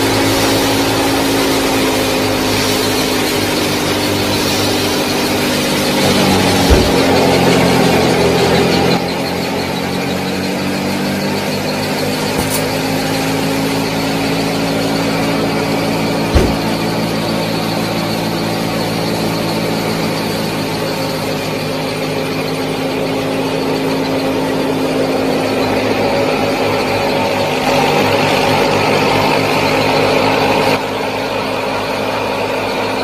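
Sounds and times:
sharp knock: 6.0 - 7.4, 12.4 - 12.8, 16.3 - 17.0.

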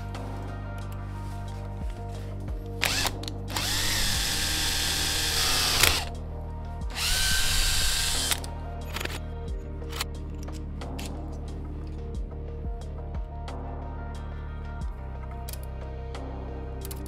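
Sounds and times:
background music: 0.0 - 17.0
power drill boring into metal: 2.8 - 6.1, 7.0 - 8.5.

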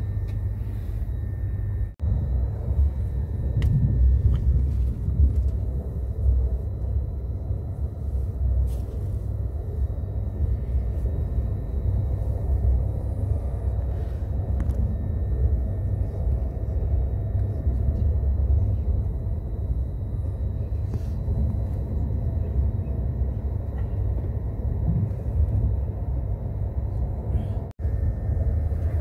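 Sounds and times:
train interior rumble: 0.0 - 29.0.

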